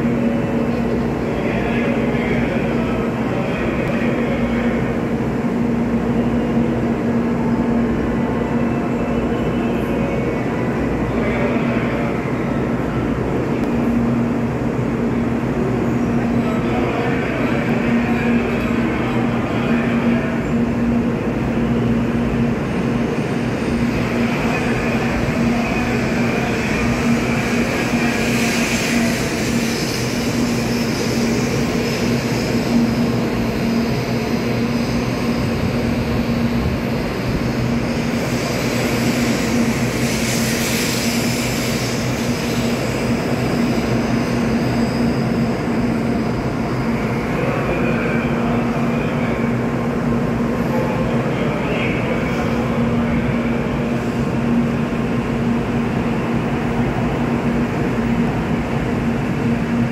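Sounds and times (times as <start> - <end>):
low train hum: 0.0 - 59.9
train wheels rumbling: 0.0 - 59.9
train hiss: 22.4 - 59.9.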